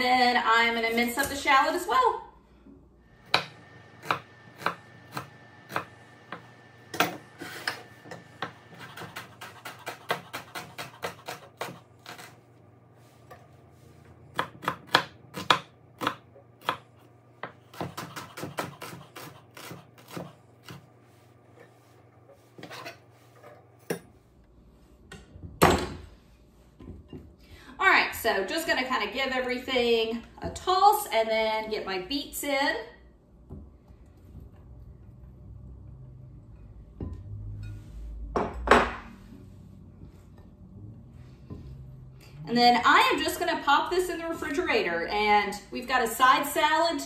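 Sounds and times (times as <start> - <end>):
knife chopping on wooden board: 3.2 - 12.3, 14.3 - 16.8, 17.4 - 20.8.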